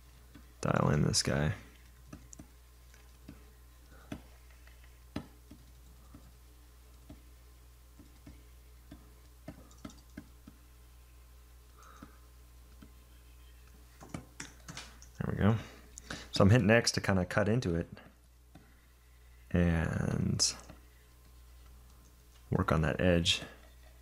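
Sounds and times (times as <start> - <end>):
low steady hum: 0.0 - 24.0
computer keyboard clicks: 9.5 - 10.3.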